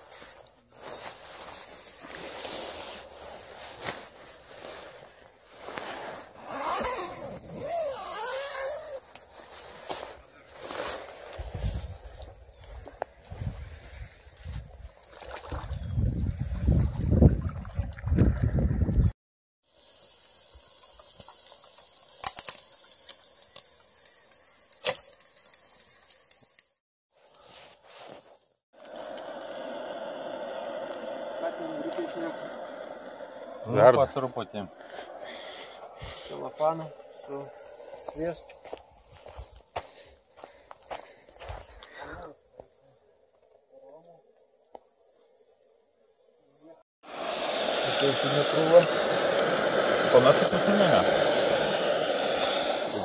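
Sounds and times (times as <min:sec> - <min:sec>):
tent zipper being drawn: 0:00.0 - 0:11.9, 0:27.1 - 0:29.7
chicken sizzling on a grill: 0:19.6 - 0:26.8, 0:28.8 - 0:34.6, 0:47.1 - 0:53.0
embers cracking: 0:19.7 - 0:42.6.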